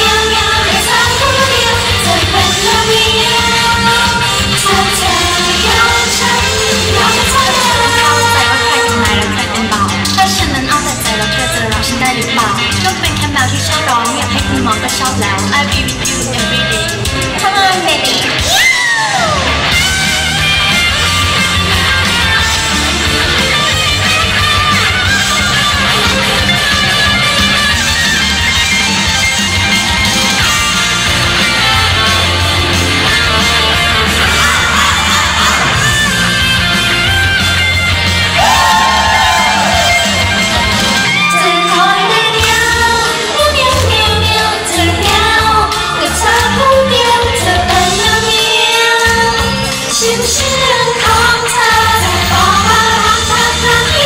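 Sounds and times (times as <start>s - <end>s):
woman singing into microphone: 0.0s - 16.8s, 41.2s - 54.0s
pop song over sound system: 0.0s - 54.0s.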